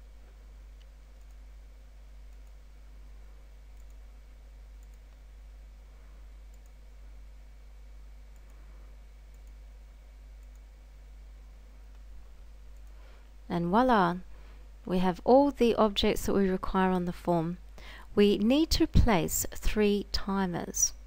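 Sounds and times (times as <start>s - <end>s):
low hum and hiss: 0.0s - 21.0s
computer mouse clicks: 0.8s - 1.4s, 2.3s - 2.6s, 3.7s - 4.0s, 4.8s - 5.2s, 6.5s - 6.8s, 8.3s - 8.6s, 9.3s - 9.6s, 10.4s - 10.7s, 12.7s - 13.0s.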